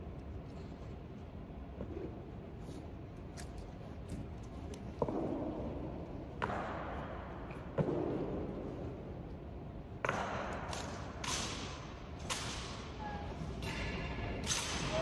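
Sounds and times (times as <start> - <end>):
rifles slapped and grounded: 9.9 - 15.0.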